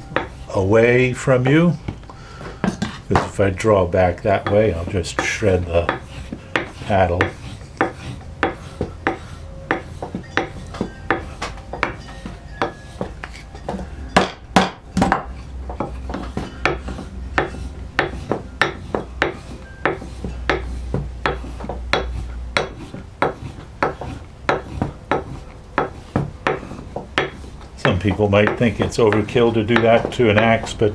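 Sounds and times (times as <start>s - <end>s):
wood paddle scraping on steel: 0.0s - 30.9s.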